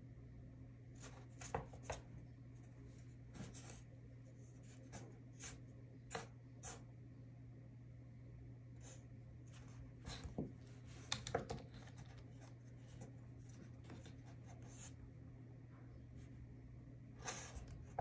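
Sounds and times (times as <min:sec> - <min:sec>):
low steady hum: 0:00.0 - 0:18.0
kitten claws scratching on desk: 0:11.0 - 0:15.0.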